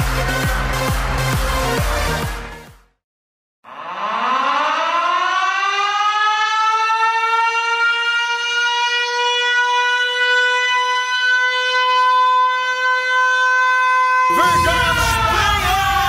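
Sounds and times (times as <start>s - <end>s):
goal horn siren-like tone: 3.7s - 16.0s.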